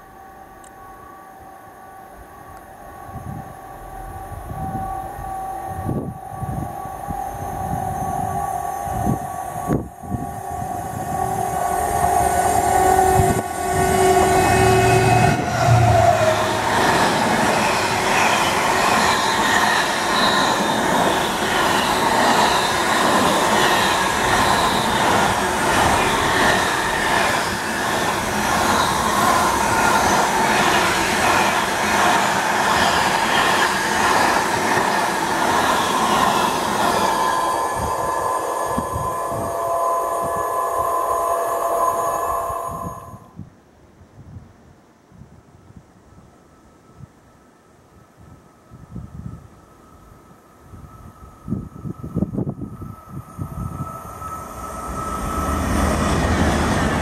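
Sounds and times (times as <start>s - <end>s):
diesel locomotive passing: 0.0s - 43.4s, 49.2s - 57.0s
train wagons rumbling on rails: 3.2s - 43.2s, 51.5s - 57.0s.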